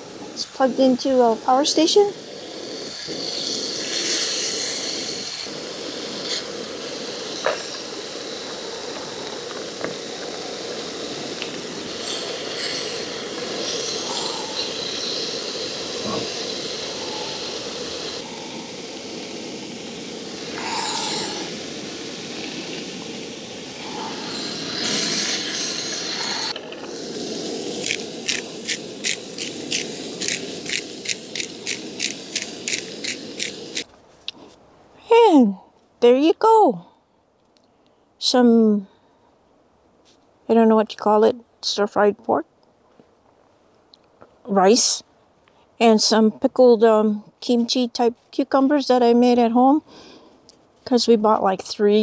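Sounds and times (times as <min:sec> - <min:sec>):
steady low hiss: 0:00.0 - 0:52.0
meat and vegetables sizzling: 0:00.6 - 0:33.9.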